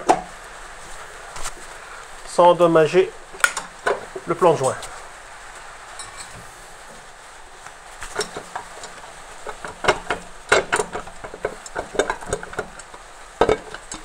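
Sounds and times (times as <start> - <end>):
metallic clicks and knocks: 8.1 - 14.0.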